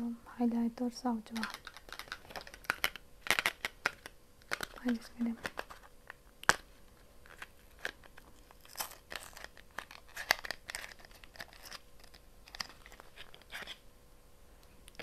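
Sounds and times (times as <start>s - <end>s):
cardboard crinkling and tearing: 7.2s - 13.8s.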